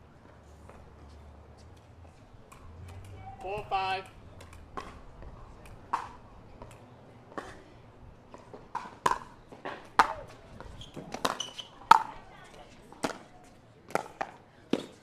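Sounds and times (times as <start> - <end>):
balls bouncing on hard court: 2.5 - 7.6, 8.3 - 12.1
paddles hitting balls: 2.5 - 7.6, 8.3 - 12.2.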